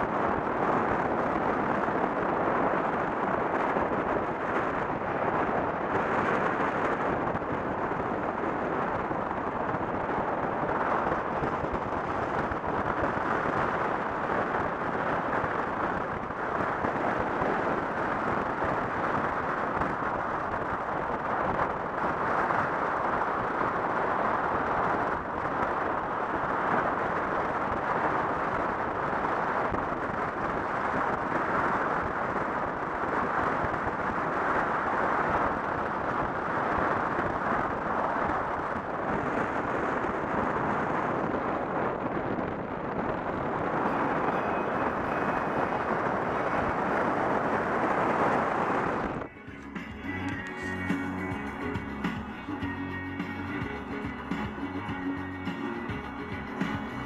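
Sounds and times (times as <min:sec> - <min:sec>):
wind rushing past car: 0:00.0 - 0:57.0
tyres on asphalt: 0:42.8 - 0:57.0.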